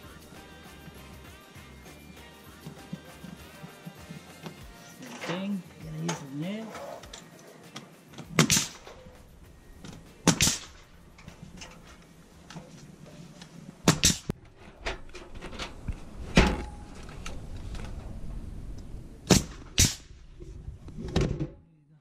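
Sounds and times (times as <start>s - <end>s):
nail gun firing: 8.3s - 9.0s, 10.2s - 10.8s, 13.8s - 14.3s, 19.3s - 20.1s.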